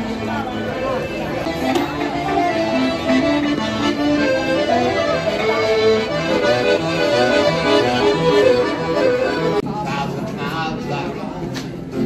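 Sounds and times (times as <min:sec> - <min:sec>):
accordion melody: 0:00.0 - 0:09.6.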